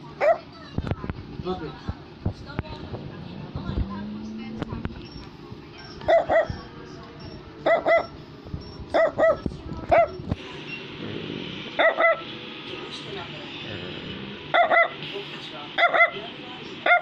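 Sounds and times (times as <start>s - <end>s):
small dog barking: 0.2s - 0.5s, 5.8s - 6.7s, 7.6s - 8.2s, 8.9s - 10.2s, 11.7s - 12.3s, 14.5s - 15.0s, 15.8s - 16.2s.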